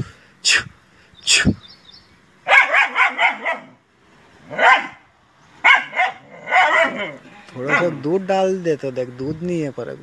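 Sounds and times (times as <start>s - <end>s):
dog barking: 2.4s - 3.8s, 4.5s - 8.0s.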